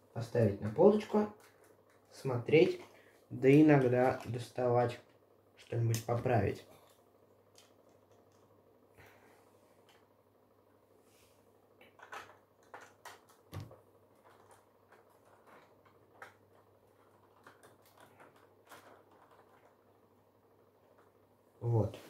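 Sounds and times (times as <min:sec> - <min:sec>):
plastic bricks clicking and rattling: 0:11.8 - 0:19.9.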